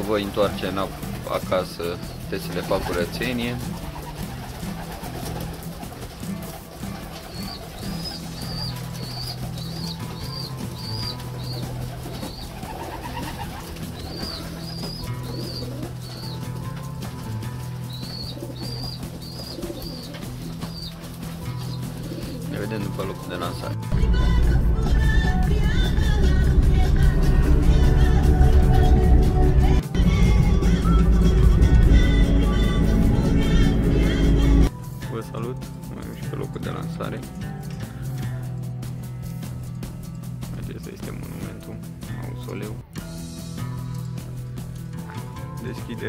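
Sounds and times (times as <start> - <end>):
pigeons cooing: 0.0 - 23.8
bass-heavy background music: 0.0 - 46.0.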